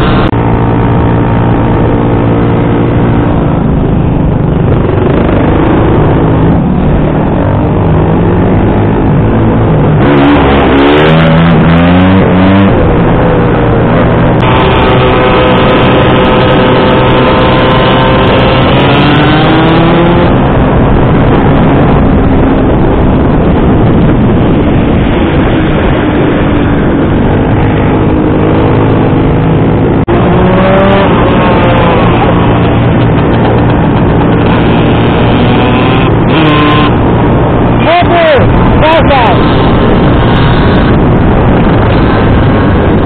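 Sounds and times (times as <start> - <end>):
wind rushing on microphone: 0.0 - 43.0
scooter engine running: 11.8 - 37.8, 39.2 - 43.0.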